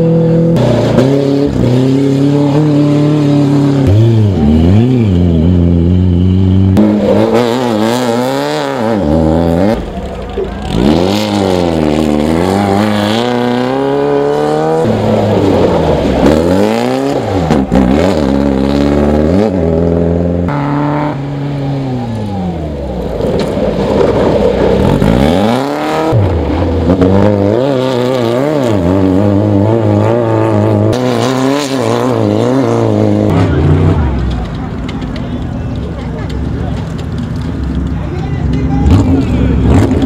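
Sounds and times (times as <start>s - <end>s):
race car engines revving: 0.0s - 40.0s.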